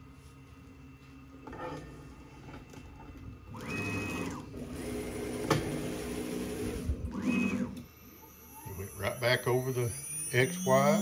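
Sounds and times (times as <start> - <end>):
stepper motors whining: 3.5 - 11.0.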